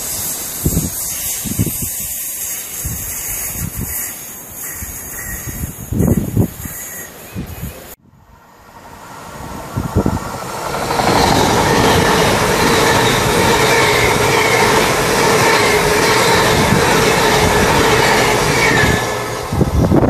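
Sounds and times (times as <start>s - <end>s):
train wheels rushing on rail: 0.0s - 8.0s, 8.6s - 20.0s
train engine whine: 0.0s - 20.0s.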